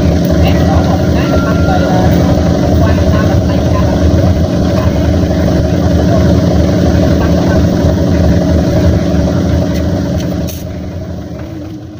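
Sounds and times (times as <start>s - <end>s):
diesel engine droning: 0.0s - 11.9s.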